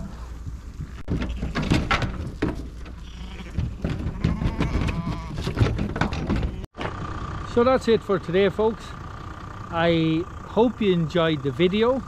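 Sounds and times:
hooves clattering on trailer floor: 0.4s - 6.7s
lamb bleating: 1.0s - 1.7s, 3.0s - 5.6s.

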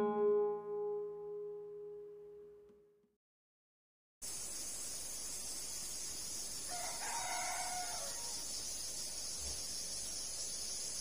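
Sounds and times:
steady high hiss: 4.2s - 11.0s
rooster crowing: 6.7s - 8.5s.

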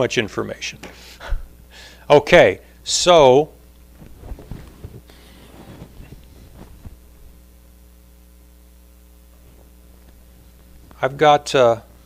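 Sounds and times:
electrical mains hum: 0.0s - 12.0s
faint rustling and knocks: 3.9s - 7.5s.

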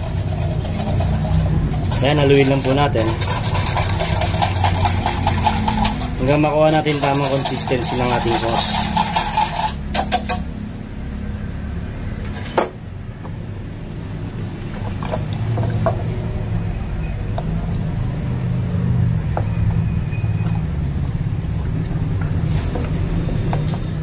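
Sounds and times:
whisk knocking against pan: 0.0s - 10.5s.

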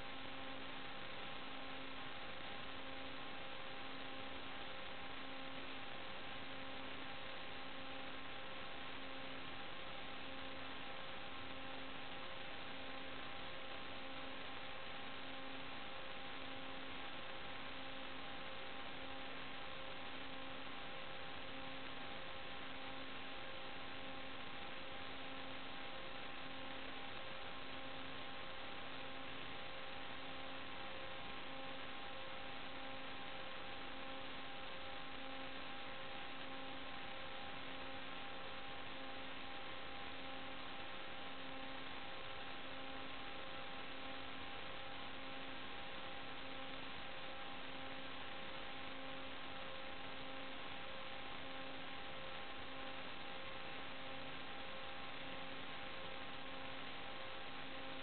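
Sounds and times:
electronic hiss and hum: 0.0s - 58.0s.

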